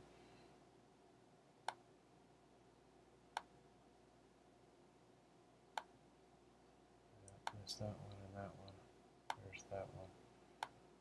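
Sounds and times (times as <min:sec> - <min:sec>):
mouse clicks: 0:01.6 - 0:01.9, 0:03.3 - 0:03.6, 0:05.7 - 0:06.0.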